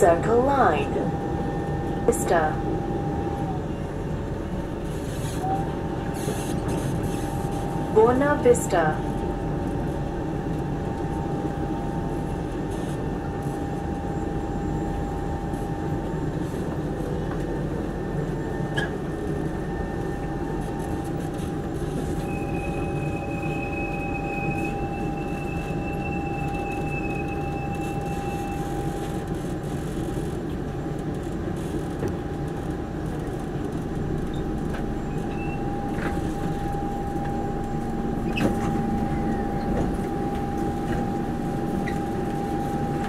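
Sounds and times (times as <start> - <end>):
train rumble: 0.0 - 43.0
electric whine: 34.3 - 43.0.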